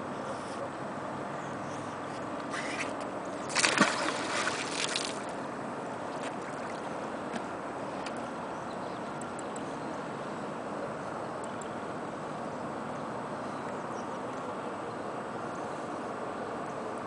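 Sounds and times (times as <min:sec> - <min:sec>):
magnet splashing into water: 0:03.5 - 0:05.3.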